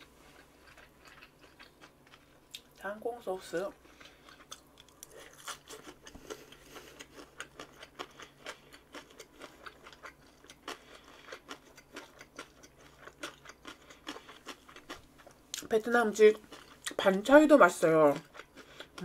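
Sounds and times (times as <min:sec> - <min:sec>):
person chewing food: 0:00.0 - 0:02.8, 0:03.7 - 0:15.7, 0:16.3 - 0:17.0, 0:18.1 - 0:19.0.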